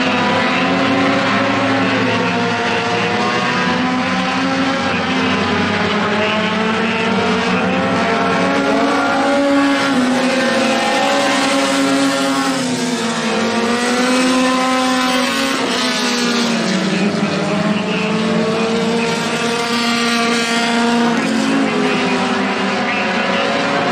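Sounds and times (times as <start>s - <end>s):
race car engines: 0.0s - 23.9s.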